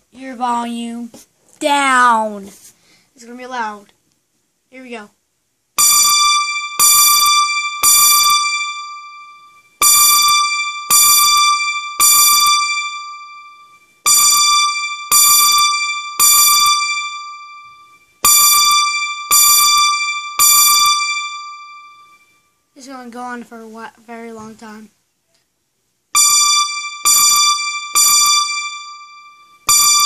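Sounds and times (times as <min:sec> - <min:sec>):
keyboard bell-like chime: 0:26.2 - 0:30.0.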